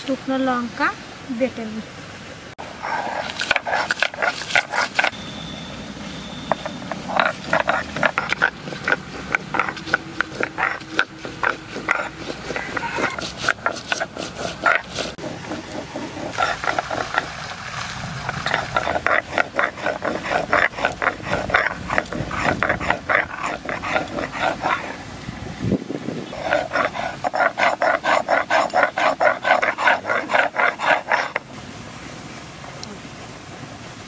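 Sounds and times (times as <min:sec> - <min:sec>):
stone roller grinding on stone slab: 0:02.8 - 0:05.2, 0:06.5 - 0:25.0, 0:26.2 - 0:31.5.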